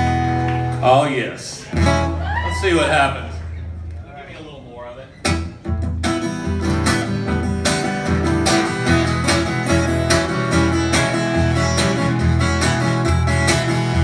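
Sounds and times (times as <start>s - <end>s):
acoustic guitar strumming: 0.0s - 1.0s, 5.2s - 14.0s.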